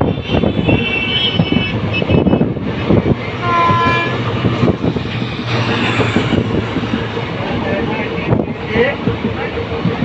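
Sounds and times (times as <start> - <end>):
train horn blast: 3.4 - 4.3.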